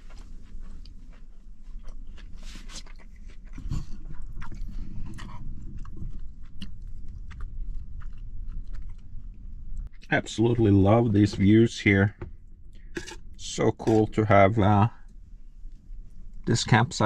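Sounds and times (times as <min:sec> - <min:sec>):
person chewing and eating: 0:00.0 - 0:10.2, 0:12.5 - 0:14.0.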